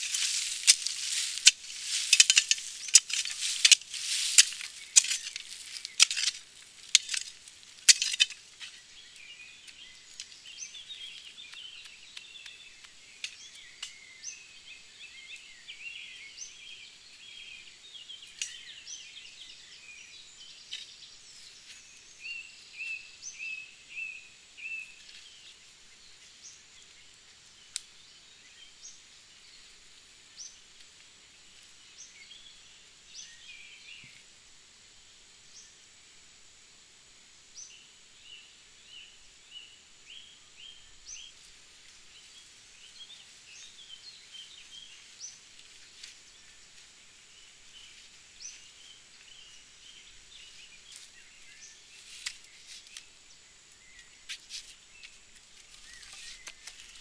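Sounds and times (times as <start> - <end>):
shovel scraping into soil: 0.0 - 8.8, 55.4 - 57.0
songbirds chirping and singing: 0.0 - 34.3, 37.6 - 57.0.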